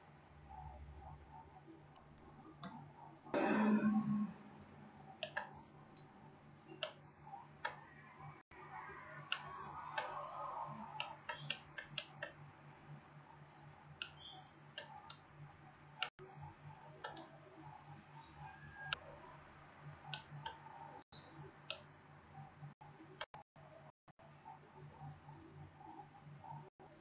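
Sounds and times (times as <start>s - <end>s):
computer mouse clicking: 5.2s - 6.1s, 7.6s - 7.9s, 9.2s - 12.4s, 14.0s - 15.3s, 16.9s - 17.4s.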